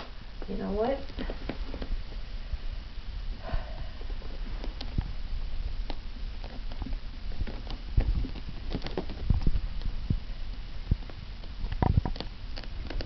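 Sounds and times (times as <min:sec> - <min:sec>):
kitten clawing at fabric: 0:04.0 - 0:13.0.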